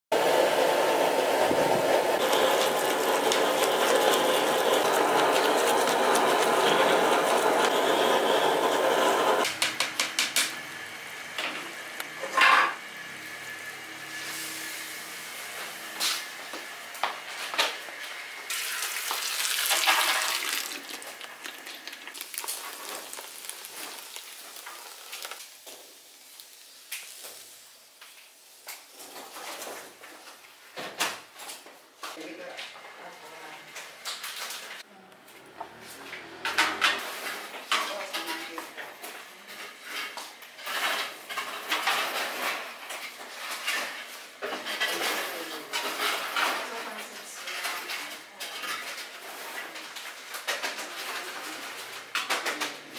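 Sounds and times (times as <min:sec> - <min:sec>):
liquid sizzling in hot wok: 0:00.2 - 0:09.5, 0:18.5 - 0:29.9
crackles and pops: 0:20.7 - 0:28.9.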